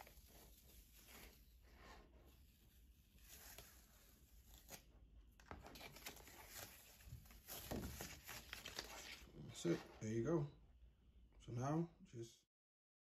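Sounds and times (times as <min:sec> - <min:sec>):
paper peeling off sticky mat: 0:03.2 - 0:09.2.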